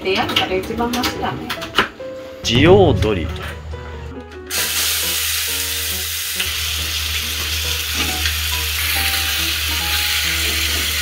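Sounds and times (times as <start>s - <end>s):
food sizzling in a saucepan: 4.5s - 11.0s.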